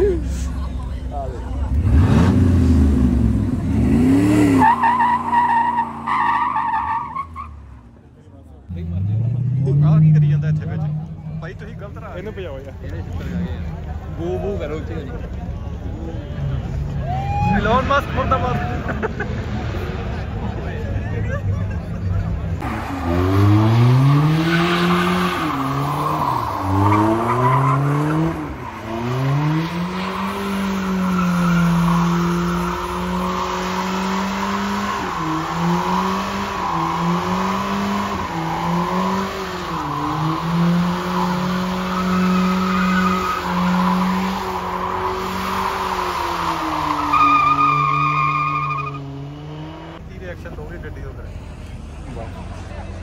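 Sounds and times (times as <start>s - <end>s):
car engine revving: 1.5s - 6.8s, 22.4s - 50.0s
tyres squealing: 41.2s - 49.1s.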